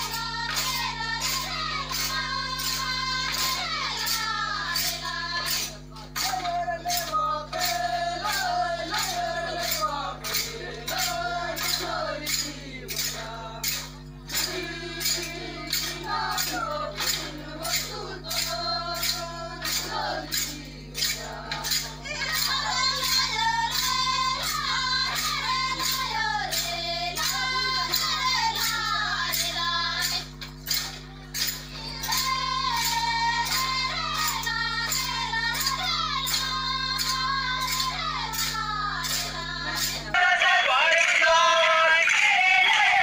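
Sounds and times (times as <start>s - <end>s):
women singing folk song: 0.0s - 30.4s, 31.8s - 43.0s.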